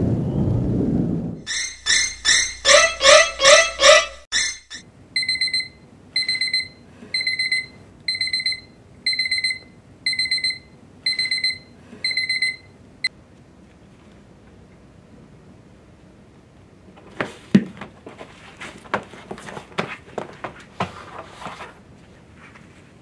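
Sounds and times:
phone alarm beeping: 0:01.5 - 0:12.7.

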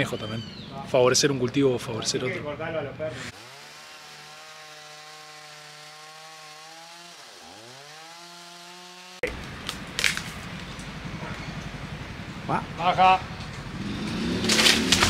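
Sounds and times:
chainsaw running at high revs: 0:03.3 - 0:09.4.

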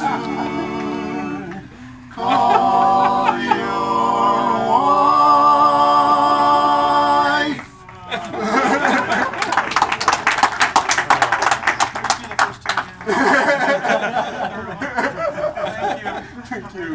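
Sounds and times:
men singing a cappella: 0:00.0 - 0:07.9
hand clapping: 0:09.1 - 0:13.1.

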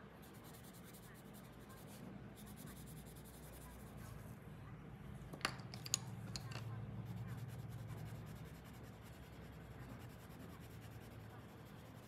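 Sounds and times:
pencil scratching on paper: 0:00.2 - 0:04.3, 0:07.0 - 0:12.0.

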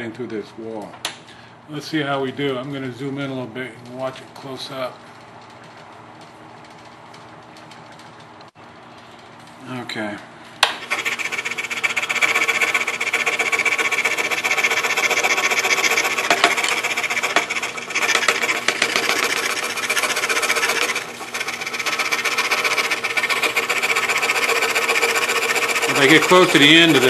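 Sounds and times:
scroll saw cutting thin wood: 0:10.8 - 0:27.0.

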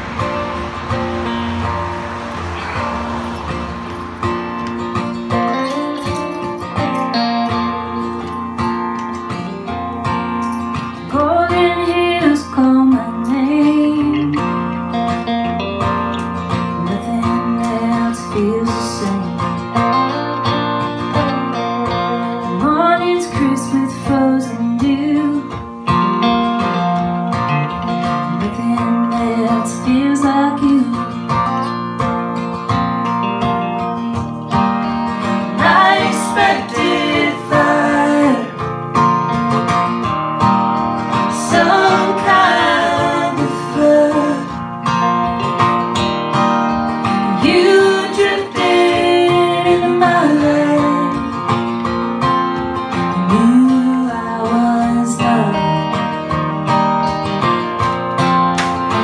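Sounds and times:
electric guitar: 0:00.0 - 0:59.0
strummed acoustic guitar: 0:00.0 - 0:59.0
woman singing: 0:11.0 - 0:14.4, 0:16.8 - 0:19.5, 0:21.2 - 0:25.7, 0:28.3 - 0:31.2, 0:35.5 - 0:38.7, 0:41.3 - 0:44.6, 0:47.2 - 0:51.4, 0:53.1 - 0:56.2.

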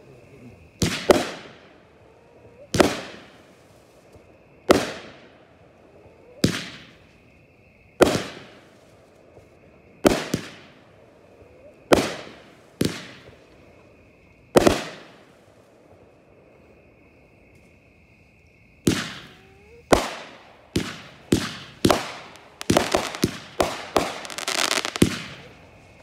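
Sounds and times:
fireworks bangs echoing: 0:00.8 - 0:01.8, 0:02.7 - 0:04.0, 0:04.6 - 0:05.4, 0:06.4 - 0:07.1, 0:08.0 - 0:08.9, 0:10.0 - 0:11.0, 0:11.9 - 0:13.6, 0:14.5 - 0:15.6, 0:18.8 - 0:26.0.

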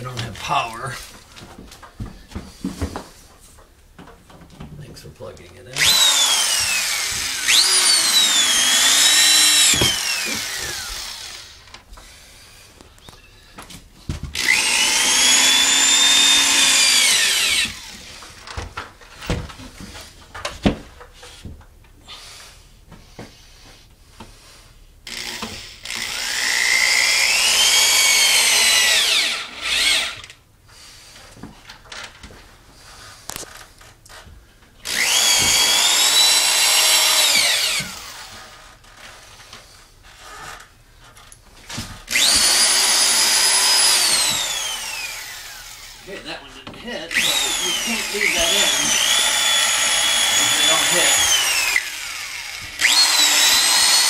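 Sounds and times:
electric drill motor whine: 0:05.8 - 0:12.4, 0:14.4 - 0:18.3, 0:25.1 - 0:30.4, 0:34.8 - 0:39.4, 0:42.1 - 0:46.2, 0:47.1 - 0:54.0.

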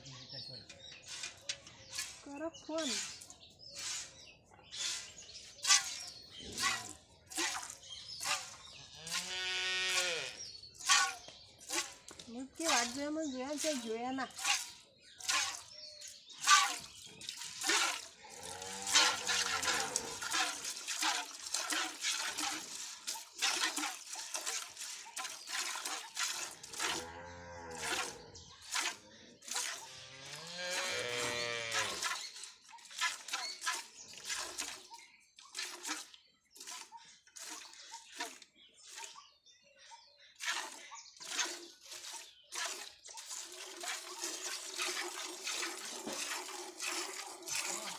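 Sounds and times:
milk squirting into steel bucket: 0:02.8 - 0:27.1, 0:27.7 - 0:29.9, 0:30.7 - 0:39.2, 0:40.4 - 0:47.9
cow mooing: 0:09.0 - 0:10.4, 0:18.3 - 0:20.2, 0:26.9 - 0:28.3, 0:29.9 - 0:32.0.

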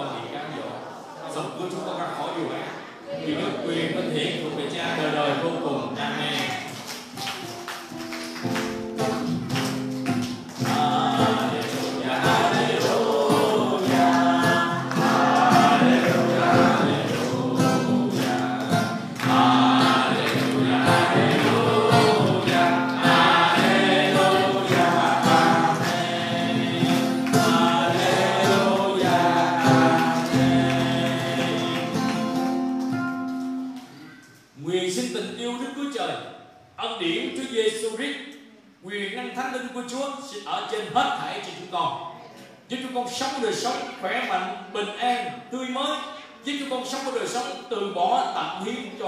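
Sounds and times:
acoustic guitar: 0:02.6 - 0:34.6
rhythmic hand clapping: 0:06.3 - 0:34.0
congregation singing: 0:09.1 - 0:32.9.

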